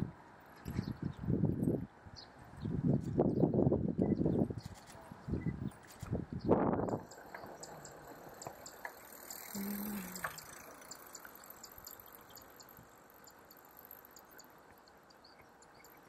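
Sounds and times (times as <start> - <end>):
soft high ticking: 6.9 - 16.0.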